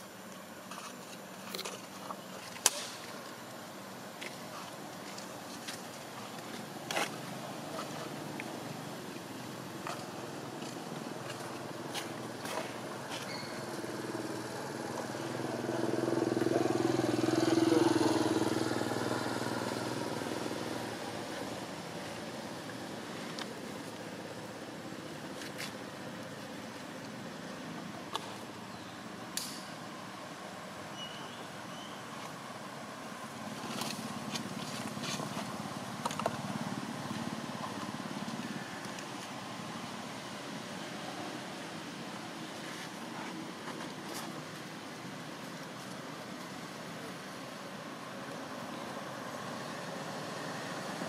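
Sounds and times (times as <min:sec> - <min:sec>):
distant traffic rumble: 0:00.0 - 0:51.0
motor vehicle passing by: 0:09.8 - 0:23.2.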